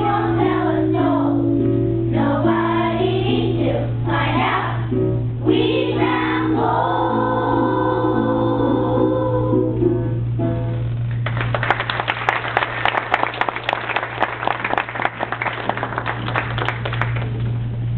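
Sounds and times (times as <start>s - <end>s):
audience applause: 11.2s - 17.5s.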